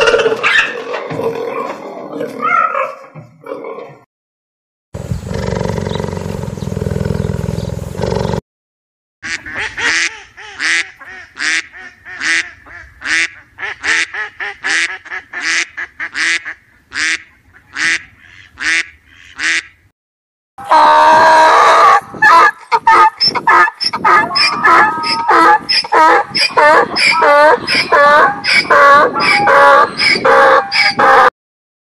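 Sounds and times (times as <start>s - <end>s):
duck quacking: 9.2s - 19.8s, 21.8s - 31.3s
donkey braying: 20.6s - 31.3s.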